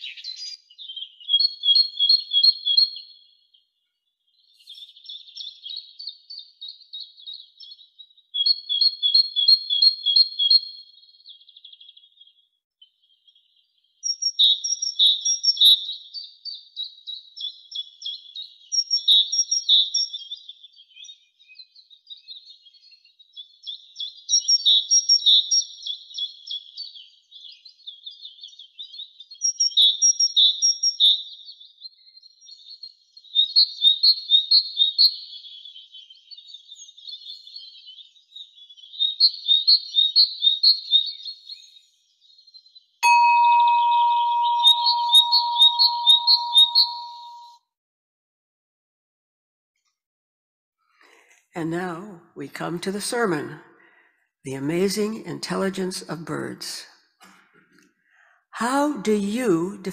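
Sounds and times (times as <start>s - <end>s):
bird singing repeated notes: 0.0s - 3.1s, 33.3s - 47.6s.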